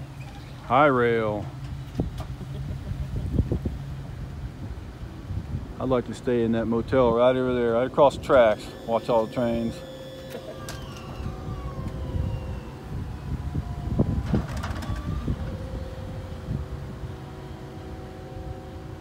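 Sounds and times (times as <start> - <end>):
truck engine rumble: 0.0 - 19.0
steady tones: 6.3 - 19.0
slowly falling tone: 8.4 - 19.0.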